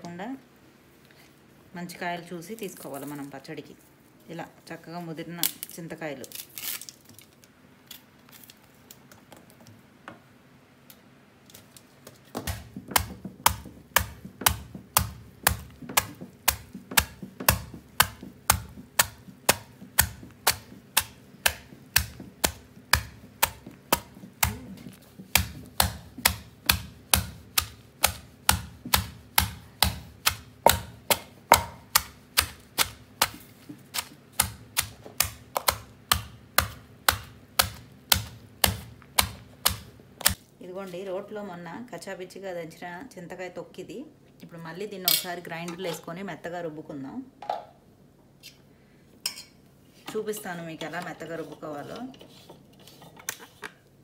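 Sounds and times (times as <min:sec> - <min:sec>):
pestle pounding in stone mortar: 0:12.3 - 0:40.4.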